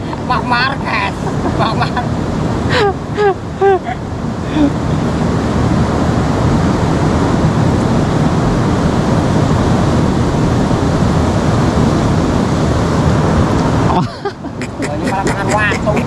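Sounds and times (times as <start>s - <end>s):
river water rushing: 1.1s - 16.0s.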